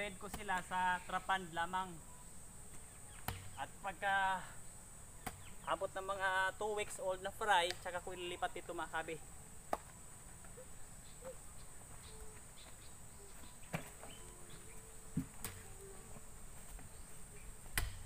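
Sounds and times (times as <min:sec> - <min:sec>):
high-pitched insect drone: 0:10.1 - 0:17.7.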